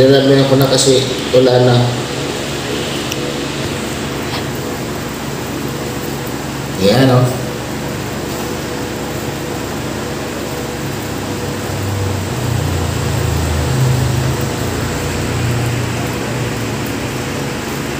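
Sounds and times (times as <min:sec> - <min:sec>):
mechanical hum and hiss: 0:00.0 - 0:17.9.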